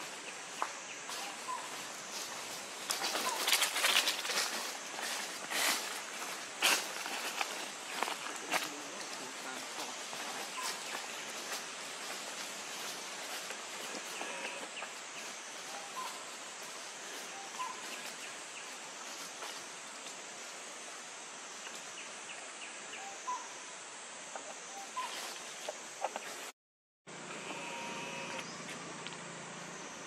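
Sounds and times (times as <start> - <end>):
steady high hiss: 0.0 - 26.5
dry leaves crackling: 1.1 - 14.6
faint bird chirps: 24.7 - 26.3.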